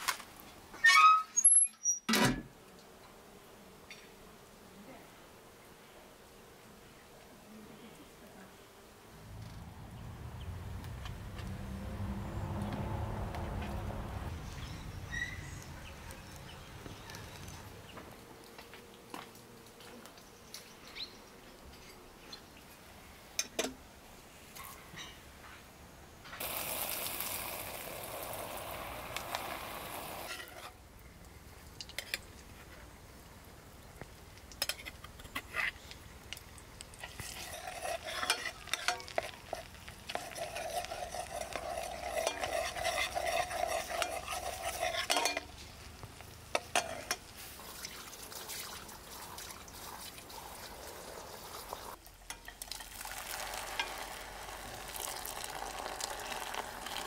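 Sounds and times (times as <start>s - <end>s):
food frying in a pan: 26.4s - 30.7s, 36.4s - 57.0s
spoon clinking against pan: 45.1s - 45.5s.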